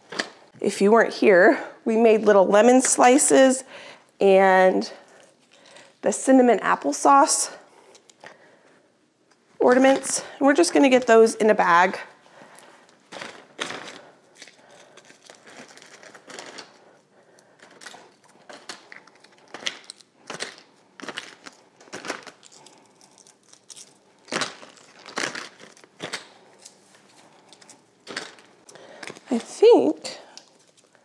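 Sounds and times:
plastic bag crinkling: 0:12.0 - 0:31.0.

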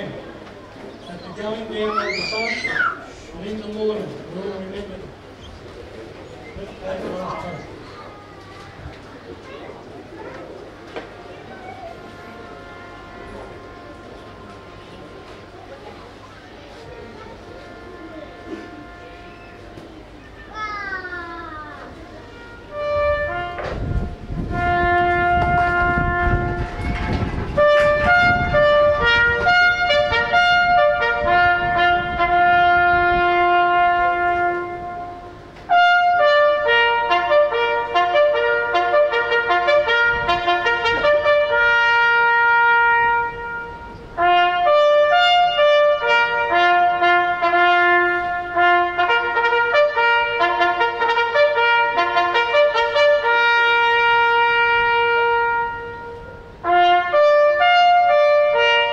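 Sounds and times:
trumpet playing long notes: 0:12.0 - 0:15.4, 0:17.5 - 0:19.7, 0:22.3 - 0:58.9.

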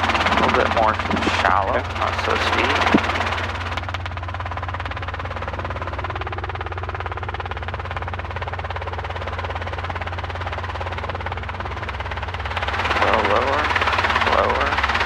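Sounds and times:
helicopter engine and rotor: 0:00.0 - 0:15.0.

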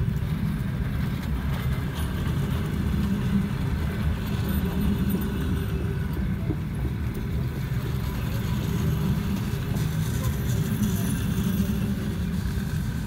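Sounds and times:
train coaches rumbling past: 0:00.0 - 0:13.0.

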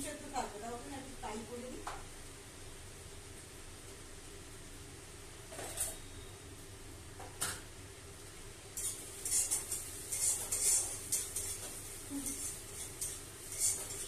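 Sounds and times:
faint steady hum: 0:00.0 - 0:14.0
metal utensils and dishes clinking: 0:05.5 - 0:06.0, 0:08.8 - 0:14.0.

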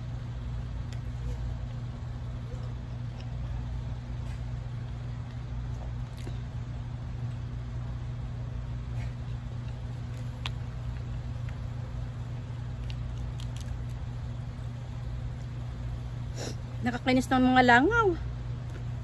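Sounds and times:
steady low hum: 0:00.0 - 0:19.0
chewing: 0:05.2 - 0:06.5, 0:09.0 - 0:15.5
shrimp shell peeling crackles: 0:09.7 - 0:15.1.

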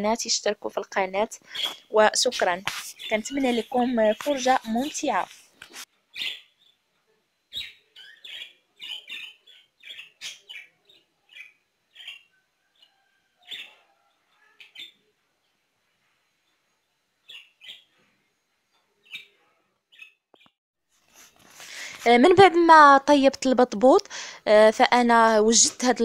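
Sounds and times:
budgerigar chirping: 0:06.1 - 0:06.7, 0:07.5 - 0:12.3, 0:17.3 - 0:17.9.

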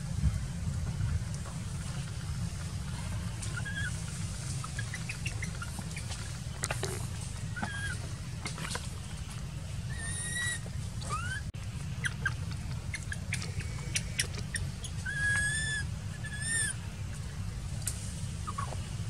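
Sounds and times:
steady low rumble: 0:00.0 - 0:19.0
high-pitched animal calls: 0:02.9 - 0:08.8, 0:09.8 - 0:16.8.

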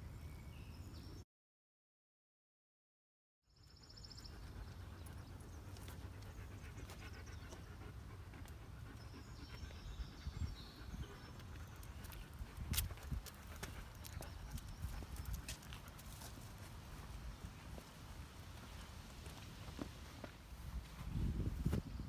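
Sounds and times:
dog panting: 0:04.2 - 0:16.5.

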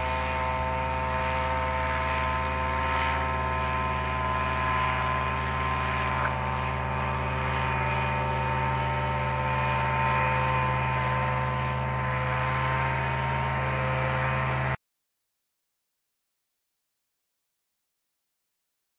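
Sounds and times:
paramotor engine and propeller: 0:00.0 - 0:14.8.

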